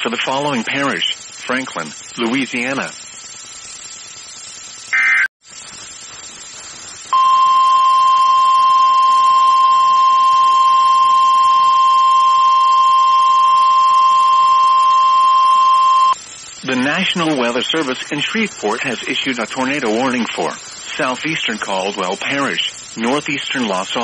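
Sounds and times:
low hiss: 0.0s - 24.0s
alert data tones squawk: 4.9s - 5.3s
high-pitched alarm beep: 7.1s - 16.2s.

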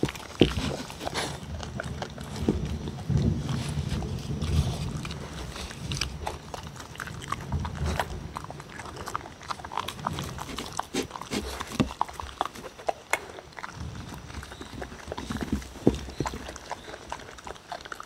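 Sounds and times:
dogs chewing and licking: 0.0s - 18.0s
teeth clicking on wooden bowls: 0.0s - 18.0s.

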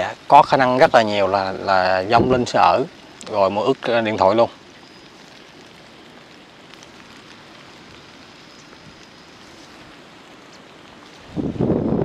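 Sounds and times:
steady rain: 0.0s - 12.0s
faint ticks: 4.5s - 11.3s.

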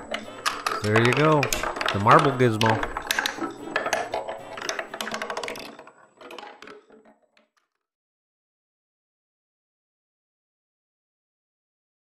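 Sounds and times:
marble clattering down wooden steps: 0.0s - 7.9s.

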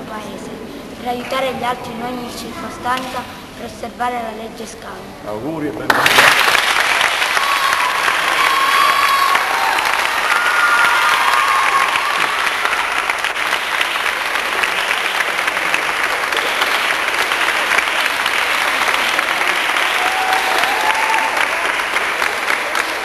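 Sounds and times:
group of people applauding: 5.8s - 23.0s.

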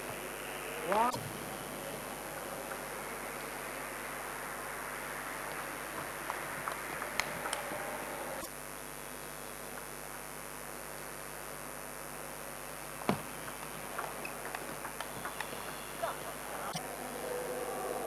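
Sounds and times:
hall hum and hiss: 0.0s - 8.5s, 12.4s - 18.0s
table tennis ball clicks: 13.1s - 15.8s.

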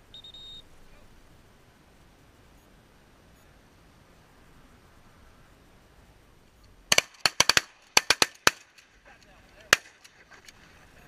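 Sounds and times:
shotgun blasts: 6.9s - 8.9s, 9.6s - 10.2s.

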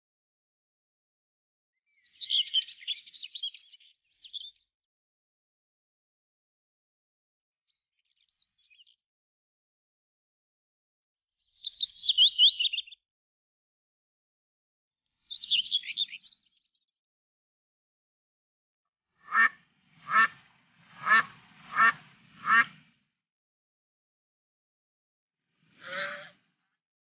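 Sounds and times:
duck quacking: 19.3s - 20.4s, 21.0s - 22.7s, 25.8s - 26.4s.

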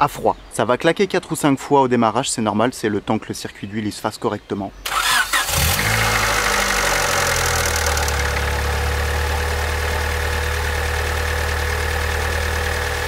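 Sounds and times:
car engine idling: 5.0s - 13.0s.

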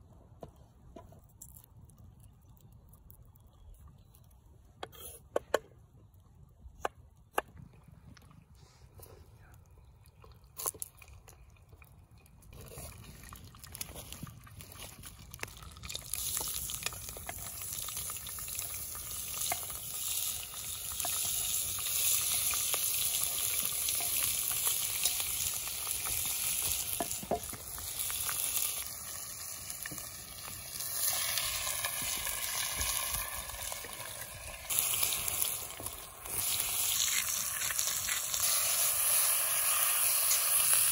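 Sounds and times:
meat sizzling in pot: 15.2s - 40.9s.

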